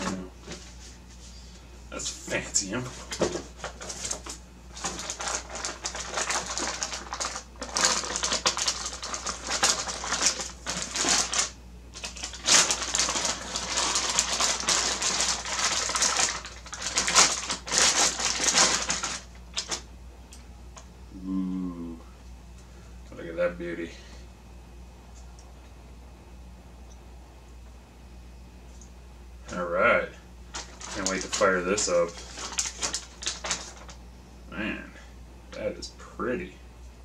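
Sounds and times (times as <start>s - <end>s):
plastic packaging crinkling: 3.0s - 19.9s, 30.5s - 34.0s.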